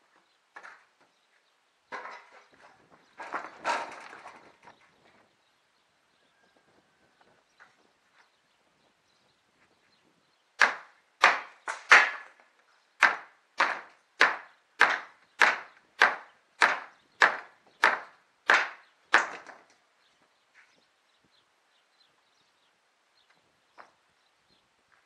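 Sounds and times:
hammer striking wooden planks: 10.6 - 12.4, 13.0 - 19.7.

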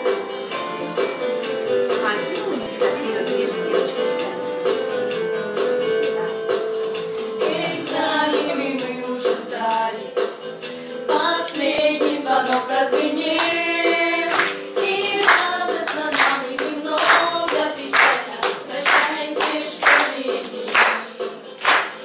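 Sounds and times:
group singing a song: 7.2 - 10.1, 11.1 - 22.0
hands clapping on the beat: 11.4 - 22.0.

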